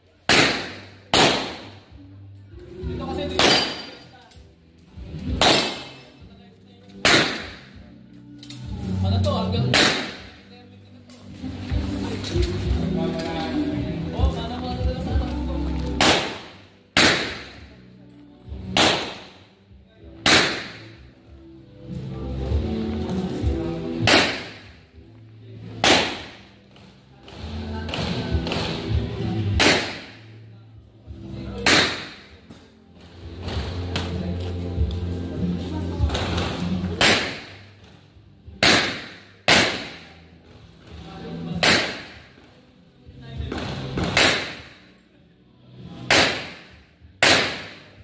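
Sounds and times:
pistol shots ringing off walls: 0:00.3 - 0:01.9, 0:03.3 - 0:04.1, 0:05.4 - 0:06.1, 0:07.0 - 0:07.8, 0:09.7 - 0:10.4, 0:16.0 - 0:17.7, 0:18.7 - 0:19.4, 0:20.2 - 0:21.0, 0:24.0 - 0:24.8, 0:25.8 - 0:26.6, 0:29.5 - 0:30.3, 0:31.6 - 0:32.4, 0:36.9 - 0:37.7, 0:38.6 - 0:40.2, 0:41.6 - 0:42.4, 0:44.0 - 0:44.9, 0:46.1 - 0:48.0.

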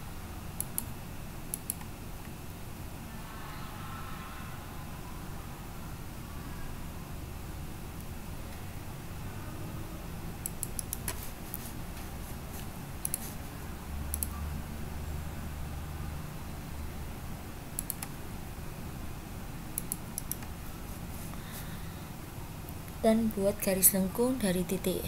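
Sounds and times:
steady low hum: 0:00.0 - 0:25.0
computer mouse clicking: 0:00.6 - 0:00.9, 0:01.5 - 0:01.9, 0:10.4 - 0:11.7, 0:13.0 - 0:13.4, 0:14.1 - 0:14.4, 0:17.8 - 0:18.2, 0:19.8 - 0:20.5.

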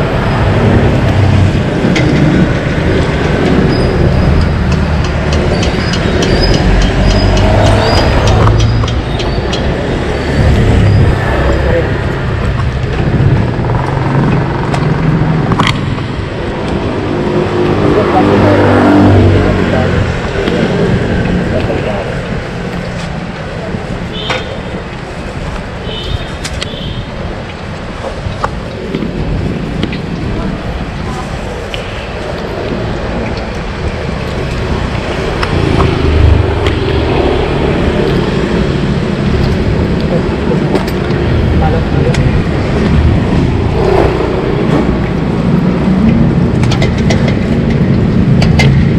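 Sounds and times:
vehicle engine rumbling: 0:00.0 - 0:48.9.

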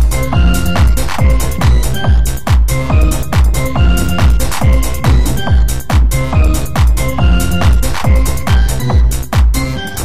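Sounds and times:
thudding kick drum: 0:00.9 - 0:07.8
held synth notes: 0:01.2 - 0:06.6
electronic dance music: 0:01.2 - 0:07.4.

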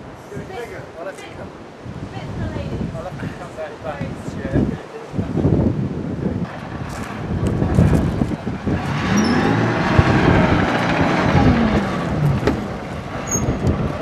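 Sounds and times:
tracked vehicle engine: 0:06.4 - 0:14.0.

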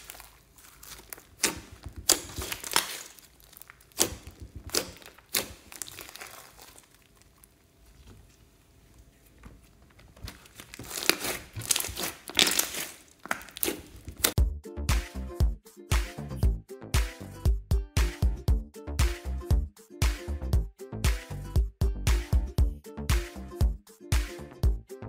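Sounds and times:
slime crackling and popping: 0:00.0 - 0:07.9, 0:10.2 - 0:14.4.

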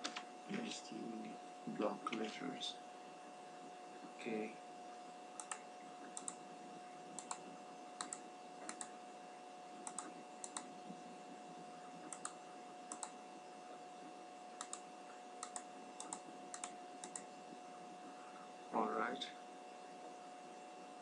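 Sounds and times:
faint electrical hum: 0:00.0 - 0:21.0
keyboard keystrokes clicking: 0:05.4 - 0:05.6, 0:06.2 - 0:06.4, 0:07.2 - 0:07.4, 0:08.0 - 0:08.9, 0:09.8 - 0:10.7, 0:12.1 - 0:13.2, 0:14.6 - 0:14.8, 0:15.4 - 0:17.2.

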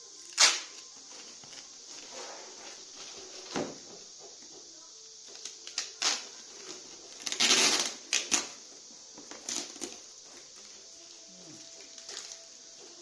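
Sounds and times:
packing tape ripped off roll: 0:00.2 - 0:03.8, 0:05.2 - 0:08.6, 0:09.3 - 0:10.5, 0:11.8 - 0:12.6.

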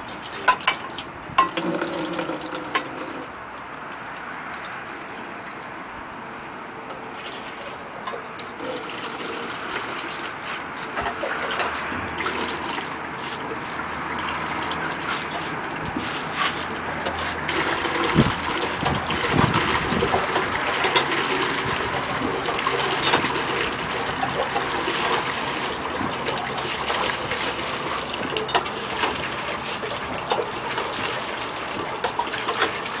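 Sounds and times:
water gushing into plastic bucket: 0:00.0 - 0:03.4, 0:07.0 - 0:33.0
pump knocks: 0:00.4 - 0:03.3, 0:10.9 - 0:12.8, 0:13.4 - 0:33.0.

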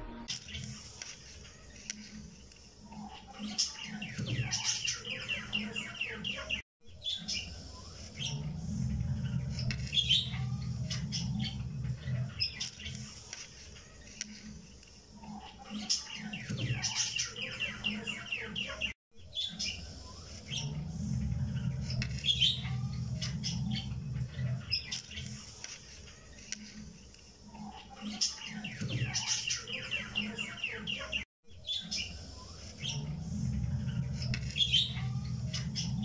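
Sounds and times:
birds chirping: 0:01.6 - 0:36.0
low hum: 0:08.0 - 0:12.4, 0:20.0 - 0:24.7, 0:32.2 - 0:36.0.

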